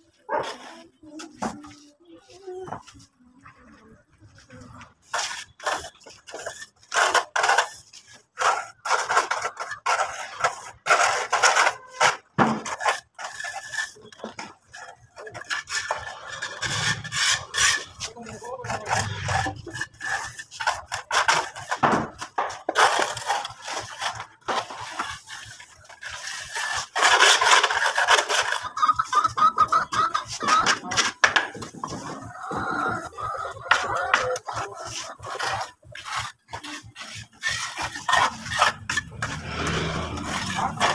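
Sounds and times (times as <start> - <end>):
float scraping over cement render: 0.3 - 28.7, 33.7 - 40.9.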